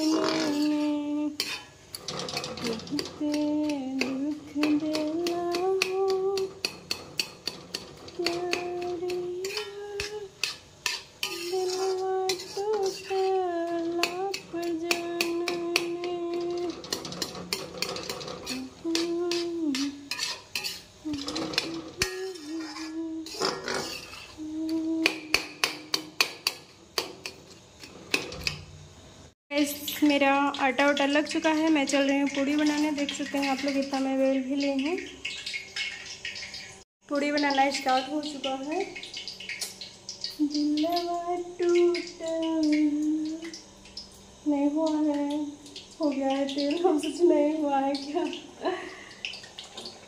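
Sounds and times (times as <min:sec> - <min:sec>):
person humming a tune: 0:00.0 - 0:01.4, 0:02.6 - 0:06.6, 0:08.2 - 0:10.3, 0:11.4 - 0:16.8, 0:18.4 - 0:20.0, 0:21.0 - 0:23.4, 0:24.4 - 0:25.5, 0:40.4 - 0:43.6
metal spatula scraping a pan: 0:00.0 - 0:28.8, 0:31.4 - 0:34.3.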